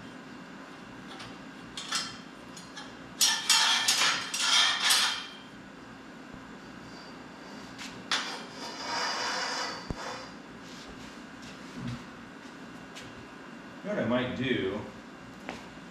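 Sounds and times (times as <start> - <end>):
steel plates clanking: 3.2 - 5.4.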